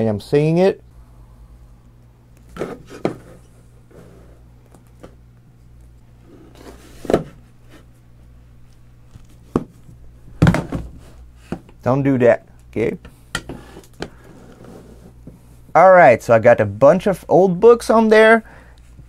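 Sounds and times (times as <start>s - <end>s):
books knocking on a tabletop: 9.5s - 9.8s, 10.4s - 11.6s.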